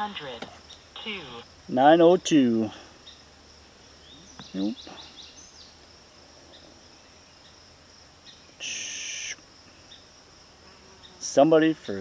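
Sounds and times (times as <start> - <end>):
insects droning: 0.0 - 12.0
short hissing burst: 8.6 - 9.4.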